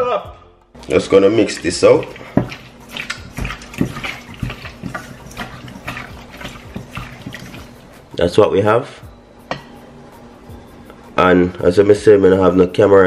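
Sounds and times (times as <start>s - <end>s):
hands squelching raw meat: 0.8s - 8.0s.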